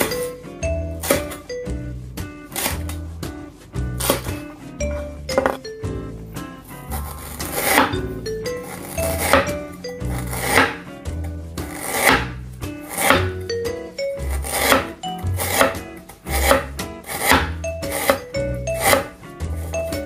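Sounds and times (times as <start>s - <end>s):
background music: 0.0s - 20.0s
cleaver slicing onto cutting board: 2.6s - 3.0s, 4.0s - 4.4s, 11.7s - 13.4s, 14.4s - 18.2s.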